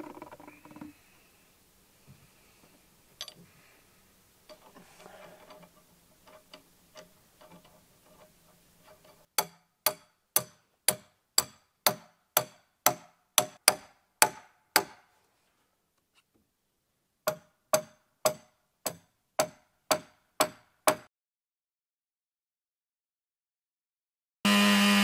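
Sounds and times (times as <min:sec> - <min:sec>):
hammer striking steel rod: 0:09.3 - 0:15.1, 0:17.3 - 0:21.1.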